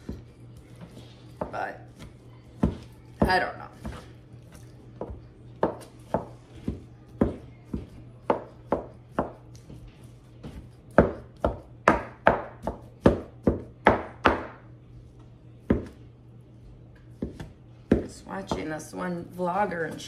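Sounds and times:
knife chopping on plastic board: 1.4 - 4.1, 5.0 - 9.7, 10.4 - 14.6, 15.6 - 16.0, 17.2 - 18.7.

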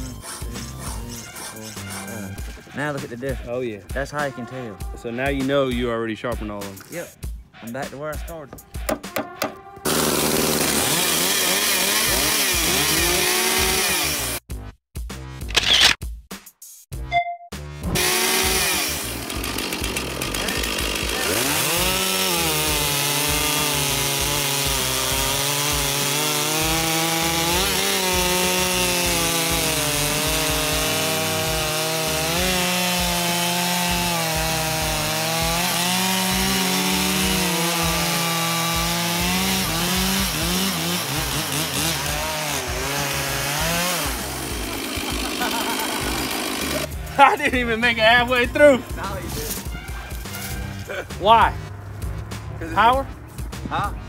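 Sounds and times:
chainsaws cutting log: 8.8 - 14.4, 17.9 - 49.6.

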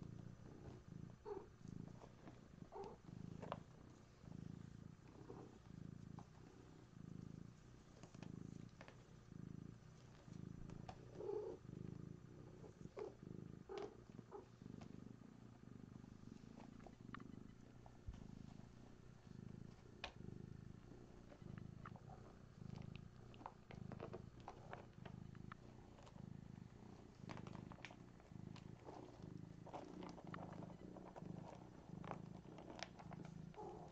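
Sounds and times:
cat purring: 0.0 - 33.9
faint clicks: 16.6 - 18.2, 19.7 - 20.2.

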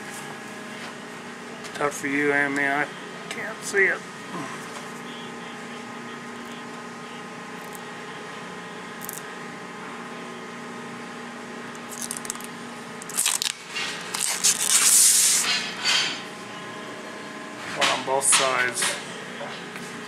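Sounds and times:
steady hum: 0.0 - 20.0
plastic film crackling as peeled: 11.8 - 15.2.

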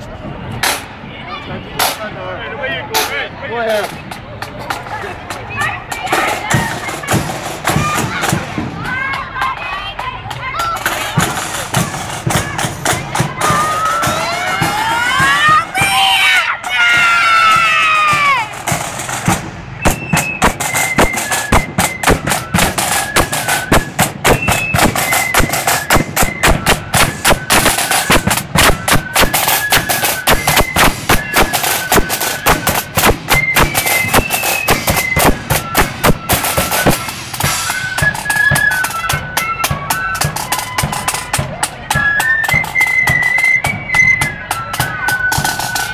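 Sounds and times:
flutes playing high melody: 10.5 - 18.8, 19.8 - 45.9
side drum strokes: 16.9 - 45.9.

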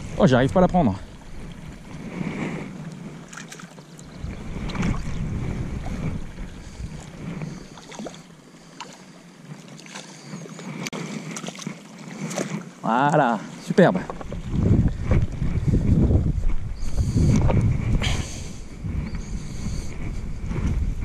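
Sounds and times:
wind rumbling on microphone: 0.0 - 21.0
fish splashing in water: 6.9 - 12.8.

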